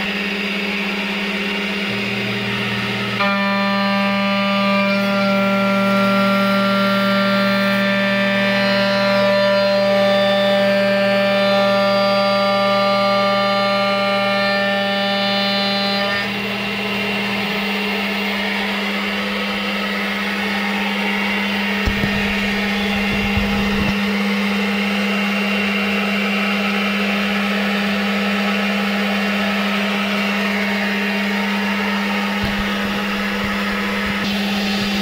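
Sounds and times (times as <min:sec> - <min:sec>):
spindle whine cutting metal: 0:00.0 - 0:35.0
dull knocks: 0:21.8 - 0:23.9, 0:32.4 - 0:35.0.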